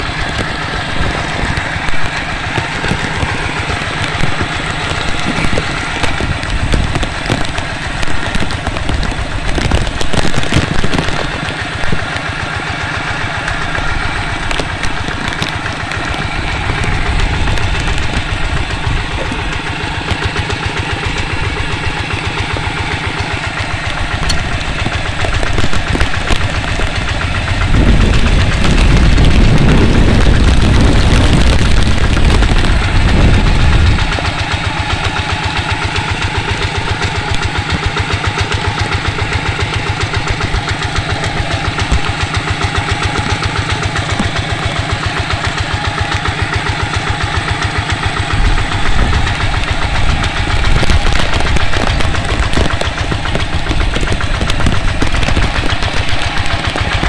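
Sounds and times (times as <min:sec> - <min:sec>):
diesel engine running: 0:00.0 - 0:57.0
wind rumbling on microphone: 0:00.0 - 0:57.0.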